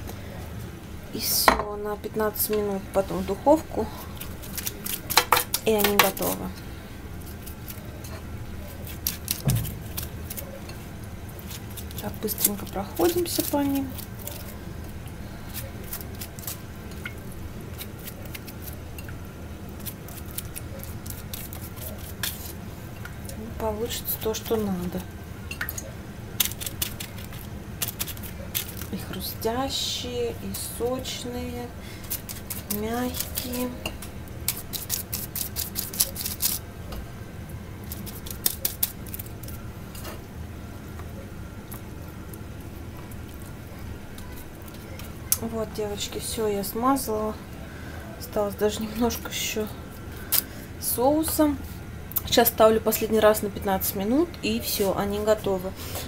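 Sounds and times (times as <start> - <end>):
pastry brush dabbing sauce: 2.4 - 29.8, 30.5 - 37.0.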